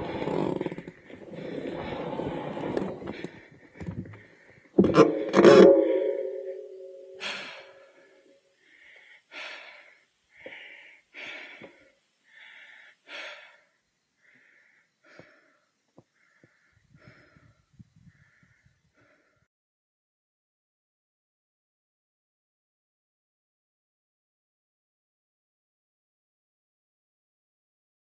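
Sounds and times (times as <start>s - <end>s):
person breathing heavily: 0.0s - 19.5s.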